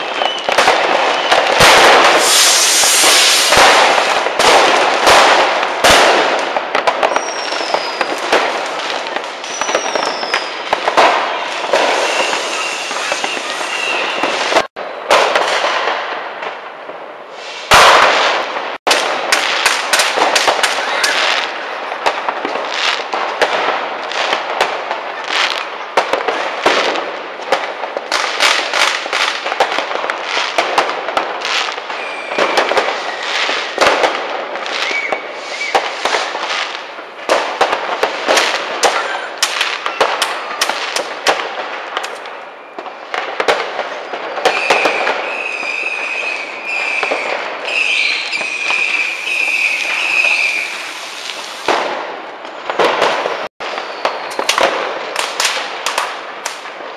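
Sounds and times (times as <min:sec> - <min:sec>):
firework whistles: 0:00.0 - 0:14.7, 0:17.3 - 0:18.5, 0:19.7 - 0:23.5, 0:31.4 - 0:34.0, 0:34.6 - 0:36.8, 0:38.2 - 0:41.1, 0:43.8 - 0:51.9, 0:52.5 - 0:55.6
loud firework bang: 0:00.0 - 0:16.6, 0:17.4 - 0:24.8
fireworks bangs and crackles: 0:00.0 - 0:56.9.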